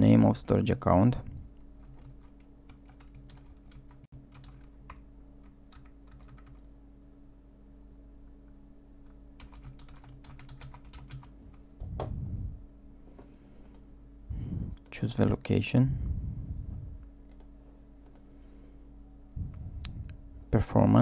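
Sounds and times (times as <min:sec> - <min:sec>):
steady low hum: 0:00.0 - 0:21.0
computer keyboard typing: 0:01.8 - 0:06.7, 0:09.4 - 0:11.3.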